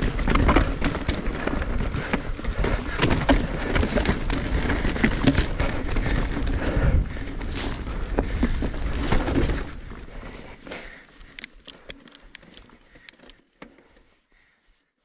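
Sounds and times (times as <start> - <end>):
bike tyres rumbling: 0.0 - 14.2
sharp clicks: 11.2 - 13.4.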